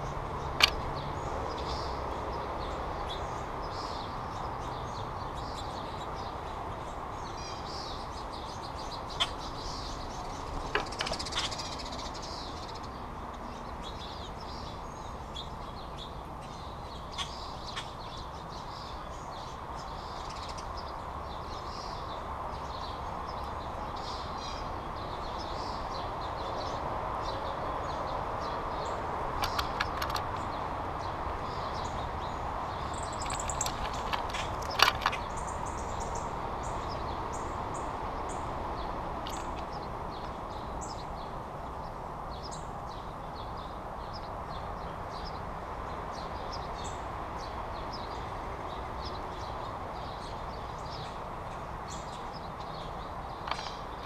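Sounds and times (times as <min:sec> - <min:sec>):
steady background noise: 0:00.0 - 0:54.0
wild birds chirping: 0:00.0 - 0:54.0
sharp taps and clatters: 0:10.6 - 0:11.6, 0:29.4 - 0:30.5, 0:33.0 - 0:35.3, 0:53.4 - 0:54.0.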